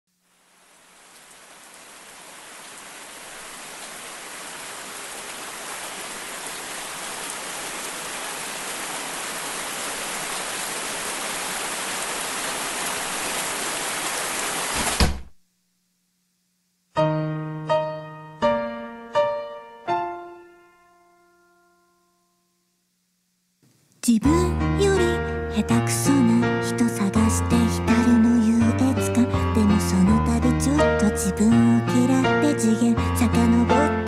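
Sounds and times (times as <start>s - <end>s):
rain: 0.1s - 15.2s
thump: 14.8s - 15.3s
piano playing chords: 17.0s - 22.2s.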